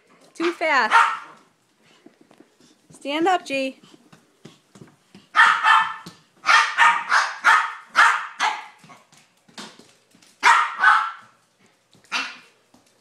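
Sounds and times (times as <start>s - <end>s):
dog barking: 0.9s - 1.4s, 5.3s - 8.8s, 10.4s - 11.4s, 12.1s - 12.5s.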